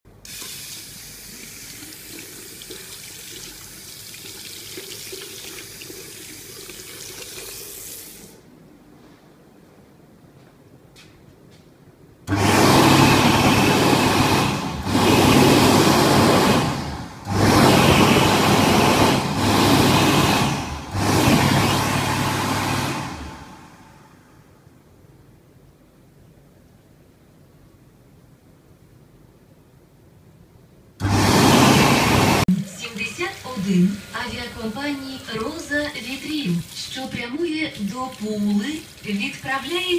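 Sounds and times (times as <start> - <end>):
hand dryer blowing air: 12.3 - 24.3, 31.0 - 37.3.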